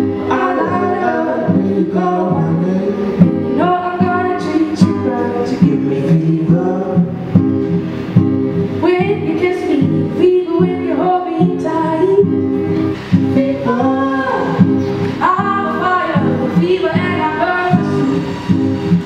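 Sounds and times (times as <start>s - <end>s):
acoustic guitar: 0.0s - 19.0s
woman singing: 0.3s - 1.6s, 3.4s - 5.7s, 8.8s - 12.4s, 13.3s - 18.3s.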